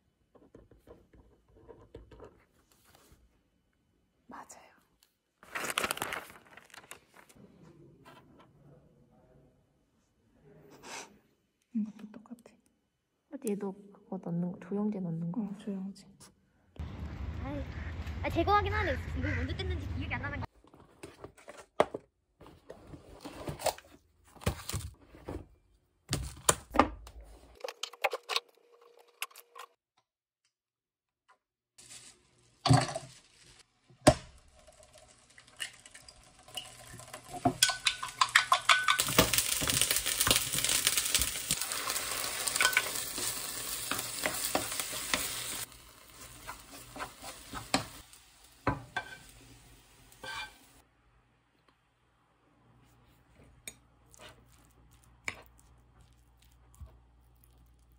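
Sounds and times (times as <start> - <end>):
rice sizzling in a frying pan: 31.8 - 50.8
spatula scraping a pan: 42.4 - 48.1, 48.8 - 49.4, 50.1 - 50.8.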